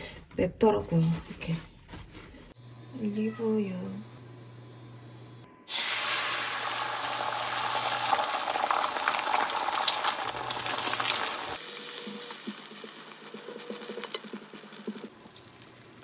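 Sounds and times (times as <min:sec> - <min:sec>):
eggs sizzling in a pan: 0:05.7 - 0:16.0.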